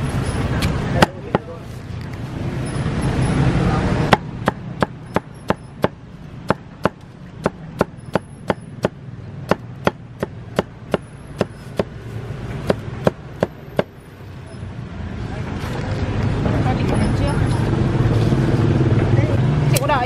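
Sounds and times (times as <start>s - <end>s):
cleaver chopping on board: 4.1s - 11.9s, 12.6s - 13.9s.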